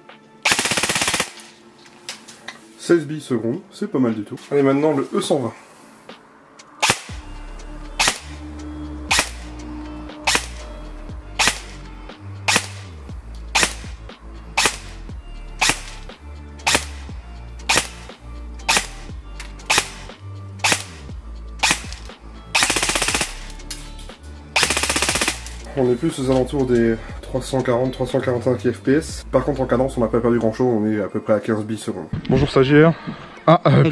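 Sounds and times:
airsoft gun firing shots: 0.4 - 1.5, 6.8 - 7.2, 8.0 - 8.4, 9.1 - 9.4, 10.3 - 10.6, 11.4 - 11.8, 12.5 - 12.9, 13.6 - 14.0, 14.6 - 15.0, 15.6 - 16.0, 16.7 - 17.1, 17.7 - 18.1, 18.7 - 18.9, 19.7 - 20.0, 20.6 - 21.0, 21.6 - 23.5, 24.6 - 25.6
airsoft gun full-auto burst: 0.5 - 1.5, 12.5 - 12.8, 13.6 - 13.8, 15.6 - 16.0, 16.7 - 17.0, 17.7 - 18.0, 20.6 - 20.9, 21.6 - 23.6, 24.6 - 25.6.

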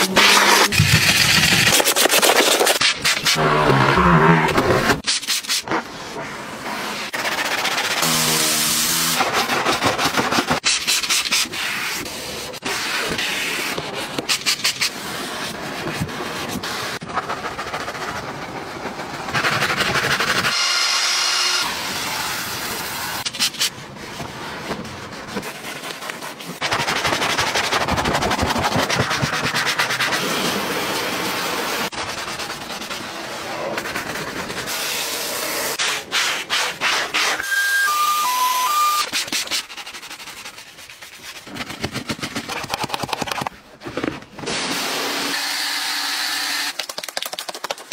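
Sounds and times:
short beeps: 37.4 - 39.1
brushes scrubbing: 39.1 - 43.5.

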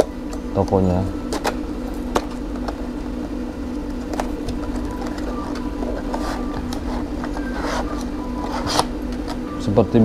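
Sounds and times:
low mechanical hum: 0.0 - 10.0
packaging clicks and rustles: 3.8 - 9.4.

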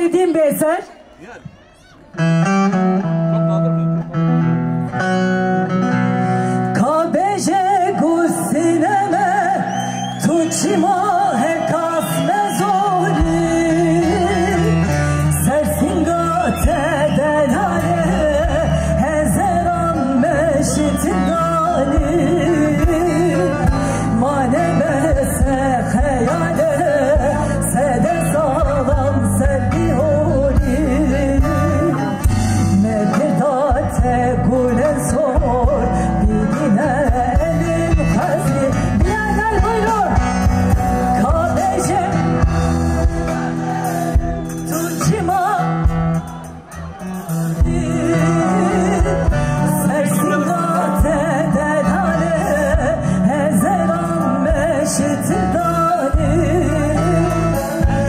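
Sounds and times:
person singing folk song live: 2.1 - 58.0.

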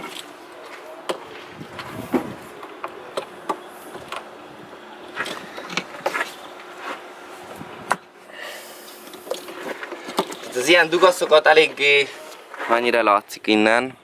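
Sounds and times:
clicks and knocks of engine parts: 9.0 - 11.4.

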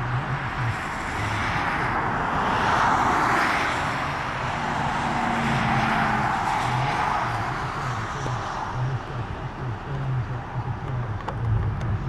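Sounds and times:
vehicle passing with rushing noise: 0.0 - 12.0
faint low hum: 5.5 - 12.0.

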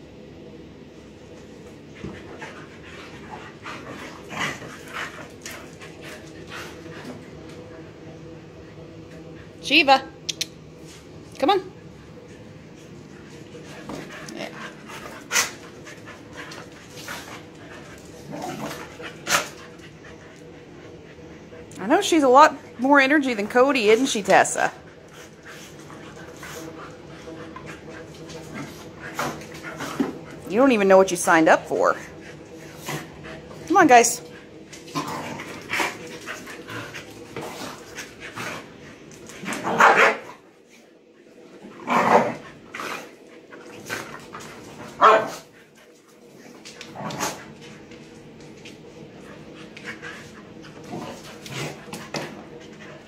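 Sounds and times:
dogs scuffling and panting: 1.3 - 8.0, 12.0 - 53.0
dog play barks: 39.4 - 40.4, 44.9 - 45.4.

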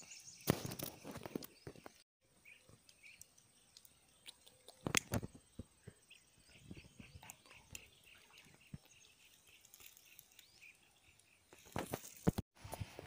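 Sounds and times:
handling knocks and rustles: 11.5 - 13.0.

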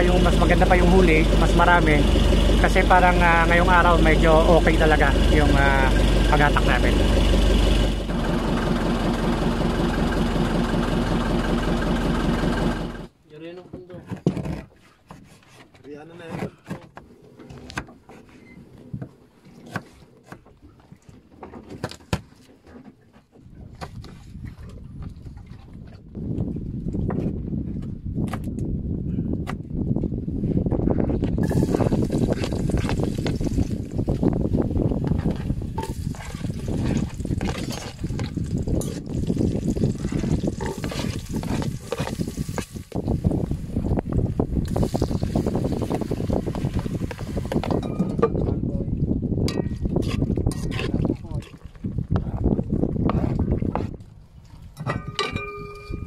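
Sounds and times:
steady low rumble: 0.0 - 13.1
oil crackles: 31.4 - 34.3, 35.8 - 43.2
spoon scraping pot: 39.9 - 42.8, 50.0 - 51.5.

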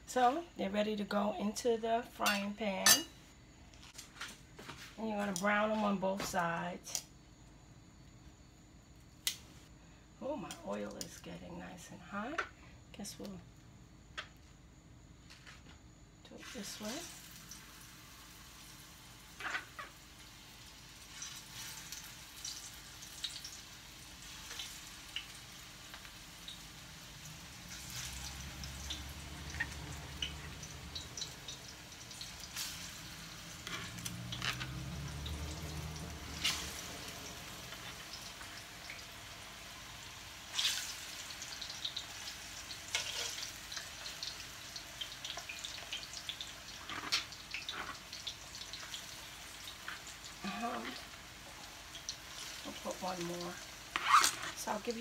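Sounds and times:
plantain sizzling in hot oil: 15.9 - 55.0.

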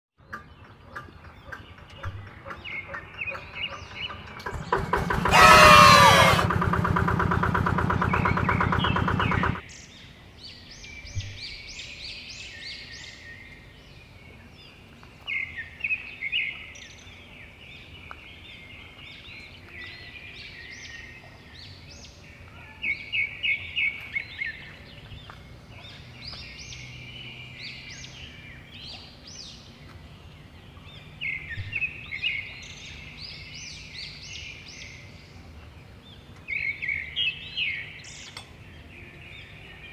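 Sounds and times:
birds chirping: 0.2 - 39.9
diesel engine running: 4.1 - 9.6.

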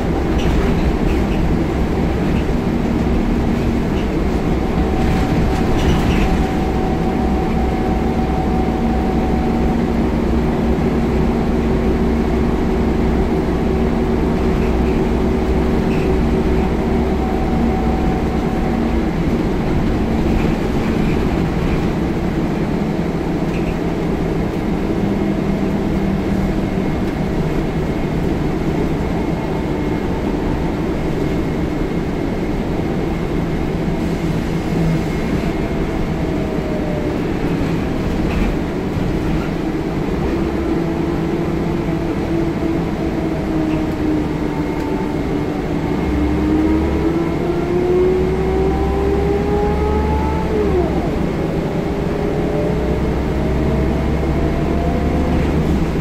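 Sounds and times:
bus diesel engine: 0.0 - 56.0
road noise: 0.0 - 56.0.

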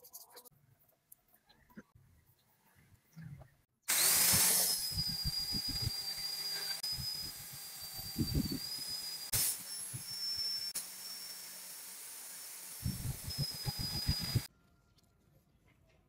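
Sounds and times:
angle grinder whining: 3.9 - 14.5.

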